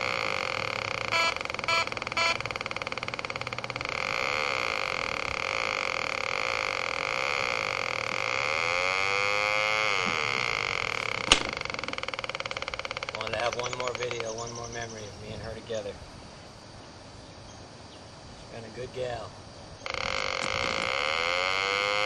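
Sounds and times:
buzzy electronic engine drone: 0.0 - 14.0, 19.8 - 22.0
short beeps: 1.1 - 2.5.

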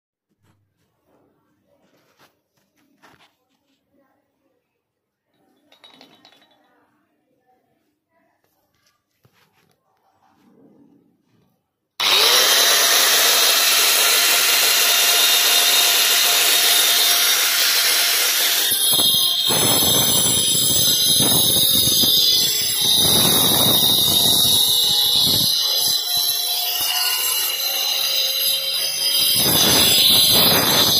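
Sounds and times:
angle grinder whine: 12.0 - 30.9
grinder cutting brick: 12.0 - 30.9.

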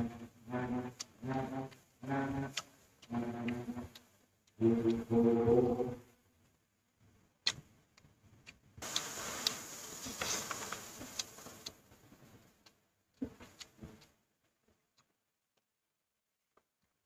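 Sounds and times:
styrofoam box rustling: 8.8 - 11.7.

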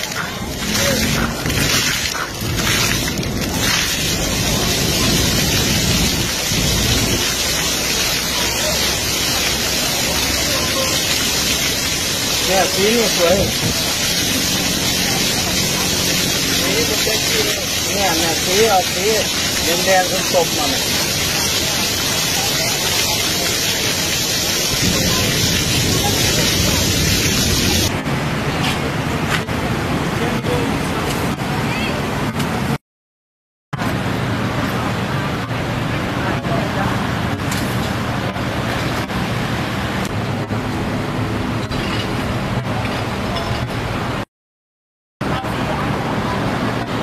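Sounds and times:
people's voices: 0.0 - 27.9, 28.5 - 32.7
fountain water jets splashing: 0.0 - 28.0, 45.2 - 47.0.

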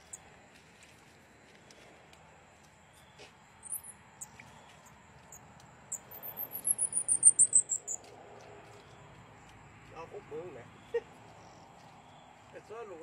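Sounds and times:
squirrel chirping: 0.0 - 0.2, 3.6 - 8.0.

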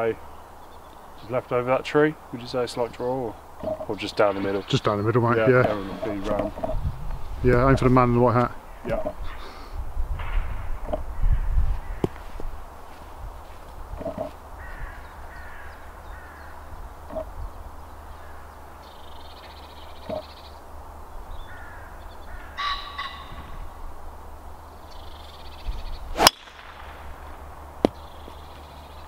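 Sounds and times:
birds calling: 0.0 - 29.0
wind rumble on microphone: 4.6 - 18.4, 23.2 - 29.0
golf club striking ball: 26.2 - 28.0.

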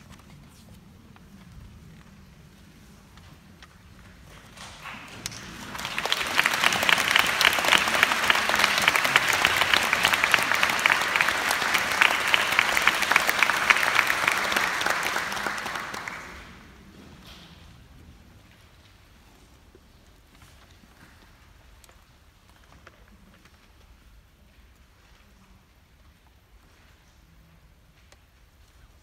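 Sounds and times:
audience applause: 4.6 - 16.7.

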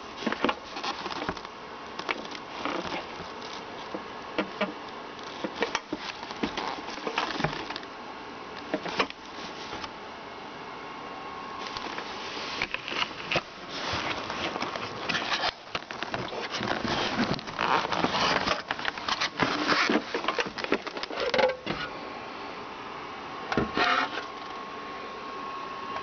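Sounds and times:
faint steady hum: 0.0 - 26.0
plastic scraping against cardboard: 0.1 - 7.8, 11.6 - 21.9.

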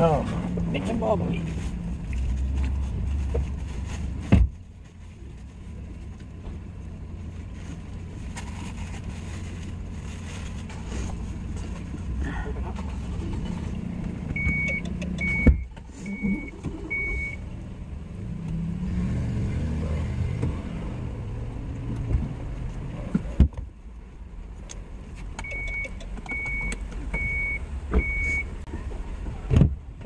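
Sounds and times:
low outside rumble: 0.0 - 30.0
car door thumps: 4.3 - 4.6
vehicle warning chime beeping: 14.4 - 17.4, 25.4 - 28.5.

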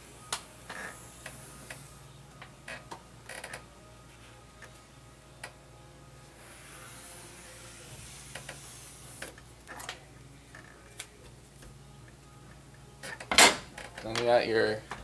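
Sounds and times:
marker scratching on plastic: 6.4 - 9.4.

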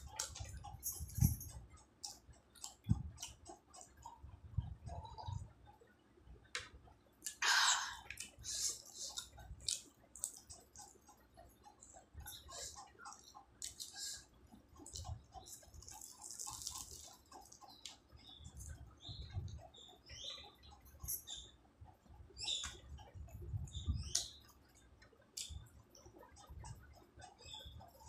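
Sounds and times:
fried pastry crackling: 14.8 - 18.0.

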